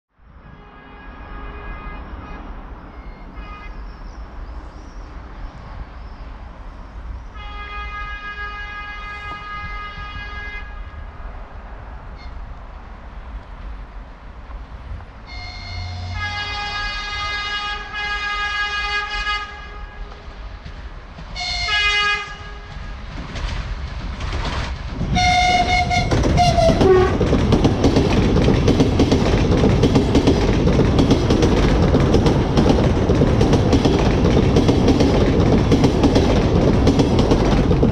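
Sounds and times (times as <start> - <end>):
passing train rushing: 0.2 - 37.9
train horn blasts: 0.4 - 3.8, 7.3 - 11.2, 15.2 - 20.3, 21.4 - 23.0, 25.2 - 27.2
train wheels clacking on rail joints: 20.0 - 37.9.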